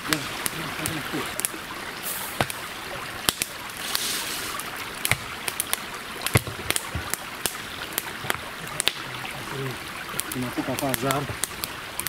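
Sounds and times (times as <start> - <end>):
steady hiss of rain: 0.0 - 12.0
raindrops tapping on windshield: 5.0 - 12.0.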